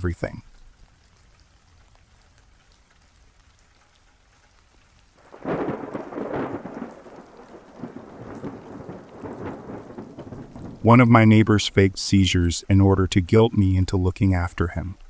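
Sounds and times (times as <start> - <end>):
faint rain: 0.0 - 15.0
thunder rumbling: 5.2 - 12.6.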